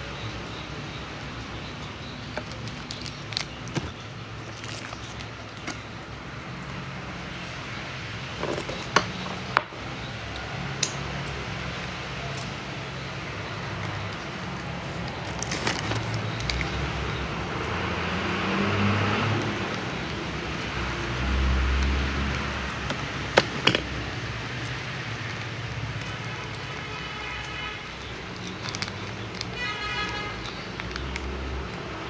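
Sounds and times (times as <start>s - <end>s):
plastic sachet crinkling: 1.9s - 5.8s, 13.7s - 16.8s, 24.6s - 32.0s.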